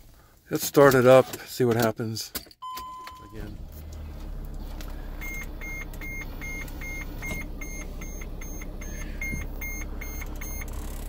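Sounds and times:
van engine idling: 0:03.2 - 0:11.0.

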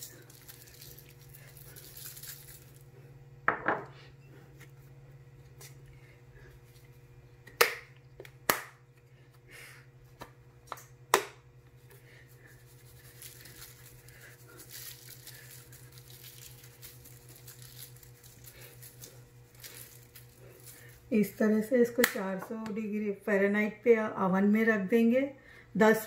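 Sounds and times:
pepper grinder grinding: 0:00.0 - 0:02.9, 0:12.3 - 0:21.1
steady low hum: 0:00.0 - 0:26.0.

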